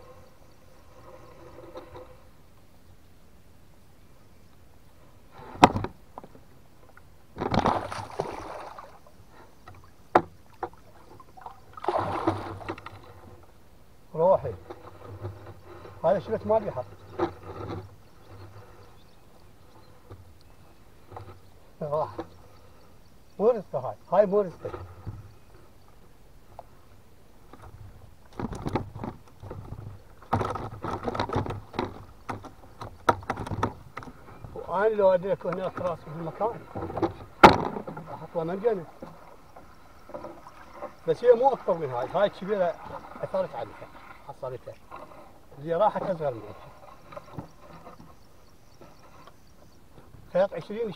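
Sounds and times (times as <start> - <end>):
knocks on wooden boat: 5.6 - 6.4, 7.4 - 7.9, 10.1 - 10.8, 36.7 - 38.1
fish splashing in water: 7.5 - 9.1, 11.4 - 12.8.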